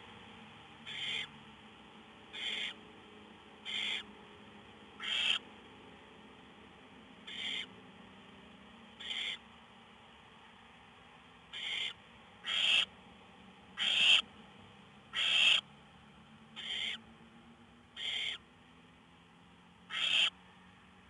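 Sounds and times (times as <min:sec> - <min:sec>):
owl nestlings hissing calls: 0:00.9 - 0:01.3, 0:02.3 - 0:02.8, 0:03.6 - 0:04.1, 0:05.0 - 0:05.4, 0:07.3 - 0:07.7, 0:09.0 - 0:09.4, 0:11.6 - 0:12.9, 0:13.8 - 0:14.3, 0:15.1 - 0:15.6, 0:16.6 - 0:17.0, 0:18.0 - 0:18.4, 0:19.9 - 0:20.3.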